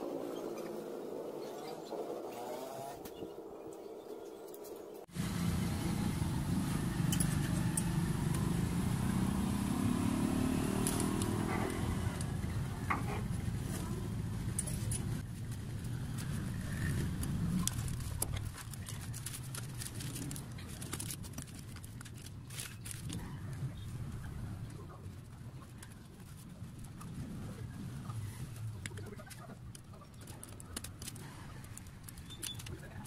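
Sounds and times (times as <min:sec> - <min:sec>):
vehicle engine running: 0:05.1 - 0:15.2.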